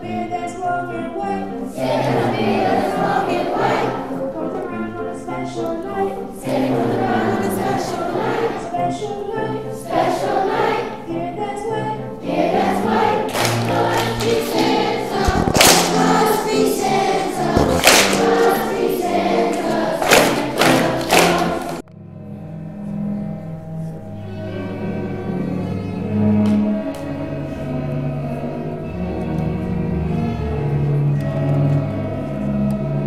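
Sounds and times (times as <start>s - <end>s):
children's chorus singing: 0.0s - 21.8s
string orchestra playing: 0.0s - 32.7s
sharp percussive hits: 13.3s - 18.8s.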